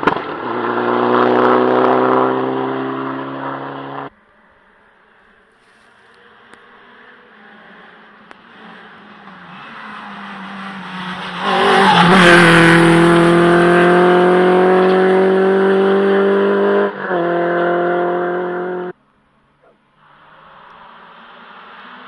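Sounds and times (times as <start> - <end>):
rally car engine revving: 0.0 - 4.1, 6.1 - 19.0.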